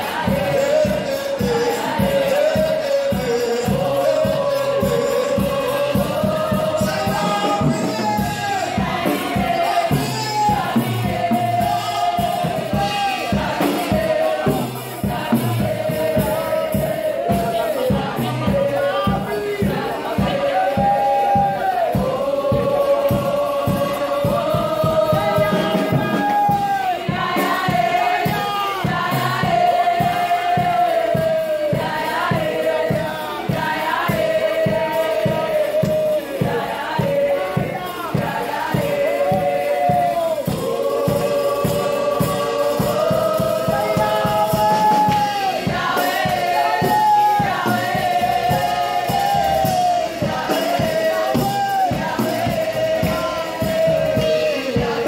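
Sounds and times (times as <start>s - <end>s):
steady beat: 0.0s - 55.0s
voices singing: 0.0s - 55.0s.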